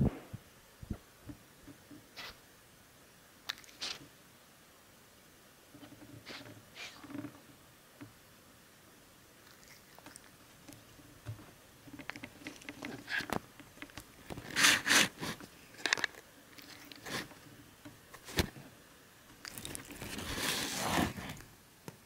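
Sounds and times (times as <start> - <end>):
cat rubbing against camera: 3.6 - 4.1, 5.8 - 7.4, 14.4 - 15.5, 16.6 - 17.4, 19.6 - 21.4.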